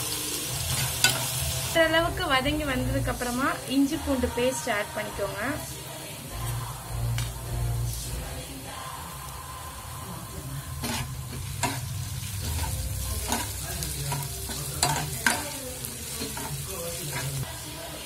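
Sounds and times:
onions sizzling in hot oil: 0:00.0 - 0:18.0
metal spoon scraping a pan: 0:00.7 - 0:01.4, 0:10.7 - 0:17.5.

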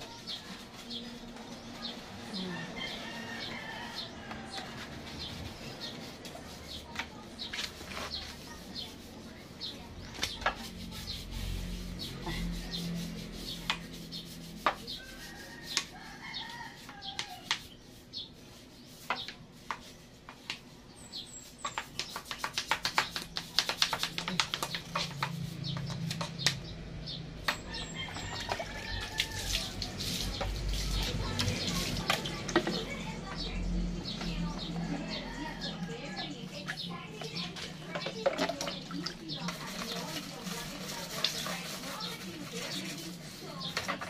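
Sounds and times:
brush scrubbing: 0:00.0 - 0:26.7, 0:27.4 - 0:44.0
water splashing from basin: 0:28.0 - 0:32.7, 0:37.5 - 0:42.6.

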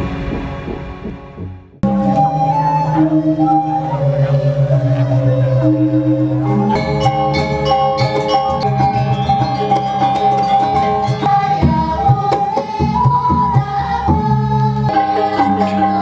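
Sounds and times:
drum strokes: 0:00.0 - 0:02.8
long held melody line: 0:00.0 - 0:16.0
metallophone notes ringing: 0:01.8 - 0:11.9.

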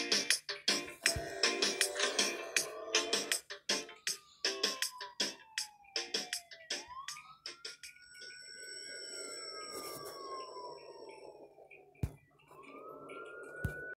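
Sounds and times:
siren-like rising tone: 0:01.0 - 0:14.0.

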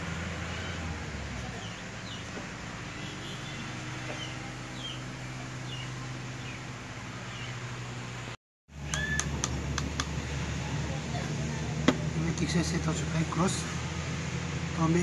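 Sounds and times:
small birds chirping: 0:00.4 - 0:07.8.

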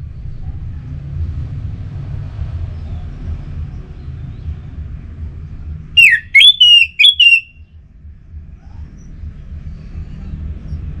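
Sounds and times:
thrush whistling song: 0:06.0 - 0:07.6.

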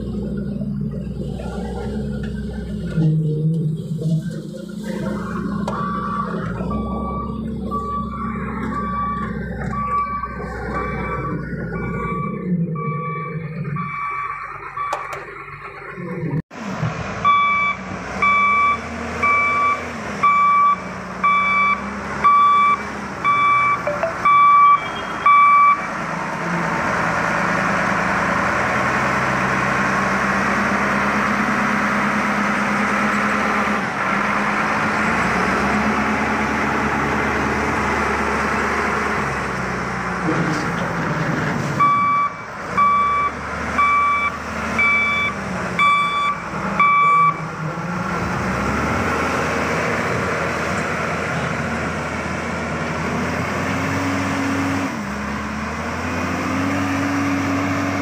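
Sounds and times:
diesel engine running: 0:00.0 - 0:58.0
reversing alarm beeping: 0:05.7 - 0:15.3, 0:17.2 - 0:25.8, 0:41.8 - 0:47.4.

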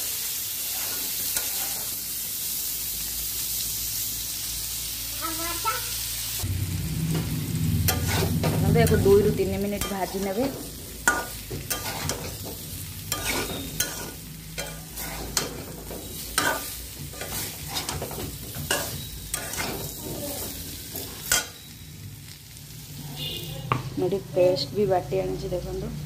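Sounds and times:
light sizzle: 0:00.0 - 0:26.0
metal spatula scraping pan: 0:00.6 - 0:02.0, 0:07.1 - 0:21.8.

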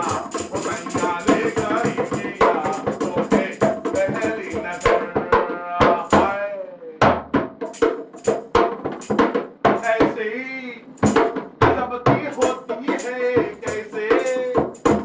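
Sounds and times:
hand drum rhythm: 0:00.0 - 0:06.4, 0:07.0 - 0:10.2, 0:11.0 - 0:15.0
man singing: 0:00.0 - 0:07.1, 0:09.7 - 0:10.9, 0:11.6 - 0:15.0.

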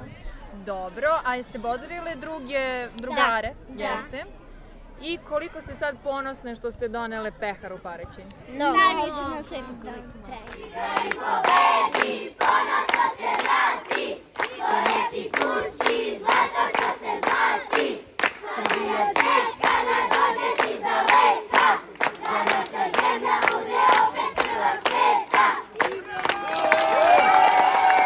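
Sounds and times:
rhythmic hand-clapping: 0:10.4 - 0:28.0
children chanting in unison: 0:10.5 - 0:25.8.

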